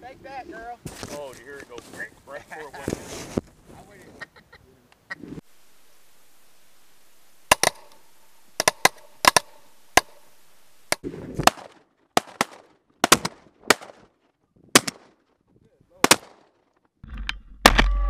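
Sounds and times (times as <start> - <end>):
shotguns firing: 7.5 - 8.0, 8.6 - 10.3, 10.9 - 14.0, 14.7 - 15.2, 16.0 - 16.5.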